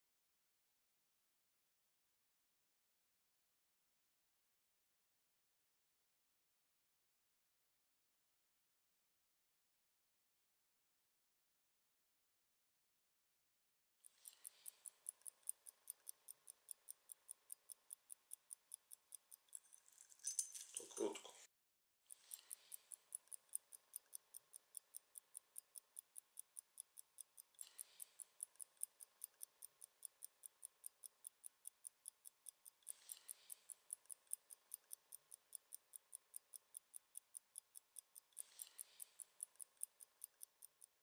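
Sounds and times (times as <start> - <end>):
wristwatch ticking: 14.1 - 21.2, 22.1 - 41.0.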